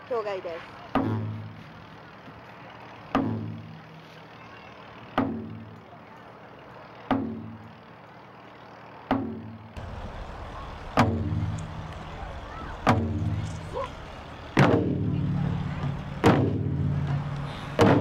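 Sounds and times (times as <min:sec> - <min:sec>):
taiko drum booms: 0:09.2 - 0:11.8, 0:12.8 - 0:13.4, 0:14.6 - 0:17.1, 0:17.8 - 0:18.0.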